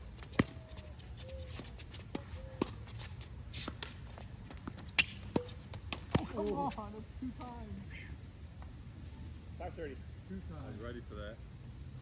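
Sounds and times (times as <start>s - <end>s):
tennis ball bouncing on court: 2.0s - 6.7s
tennis ball struck by rackets: 4.6s - 6.6s.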